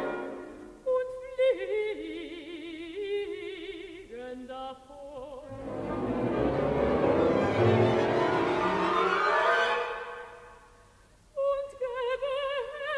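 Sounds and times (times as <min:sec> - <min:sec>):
orchestra playing: 0:00.0 - 0:00.6, 0:05.5 - 0:10.6
woman singing with vibrato: 0:00.0 - 0:05.5, 0:11.3 - 0:12.9.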